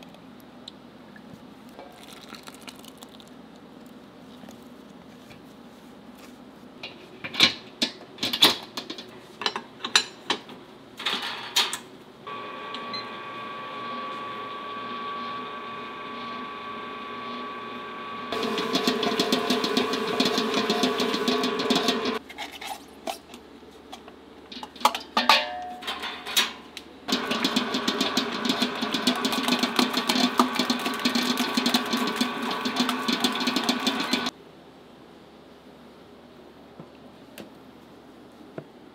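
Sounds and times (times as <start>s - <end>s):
stand mixer motor running: 12.3s - 22.2s, 27.1s - 34.3s.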